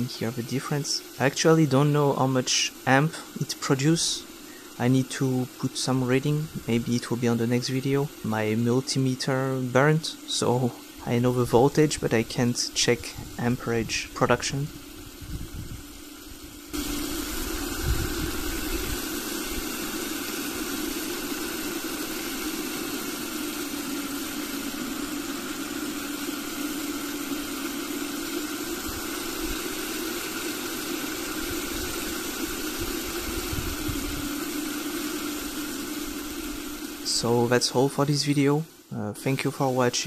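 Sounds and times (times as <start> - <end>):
generator humming: 0.0 - 40.0
spraying water hiss: 0.0 - 40.0.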